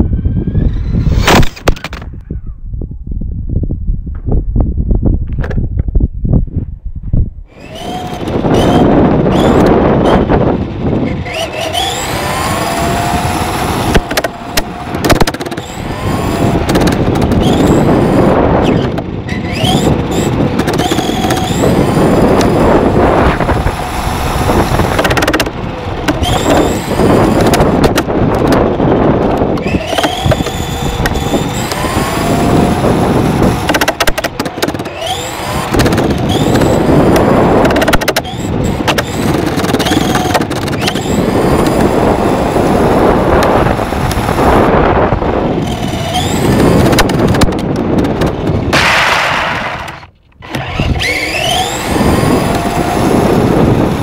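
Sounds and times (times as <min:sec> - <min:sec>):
electric motor whine: 0:07.5 - 0:54.0
tyres rolling rushing noise: 0:07.5 - 0:54.0.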